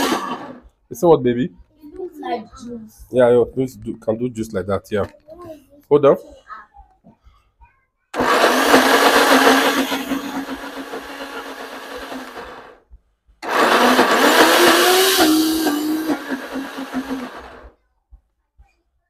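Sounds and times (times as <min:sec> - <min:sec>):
blender grinding thick batter: 0:00.0 - 0:00.6, 0:08.2 - 0:12.8, 0:13.4 - 0:17.7.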